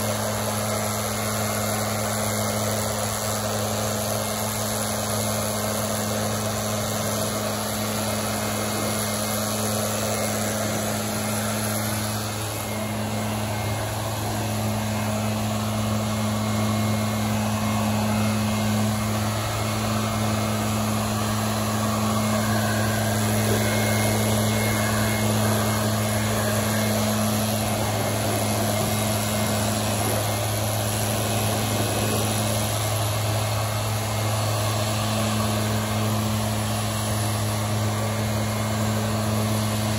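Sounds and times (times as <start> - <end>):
leaf blower engine running: 0.0 - 39.9.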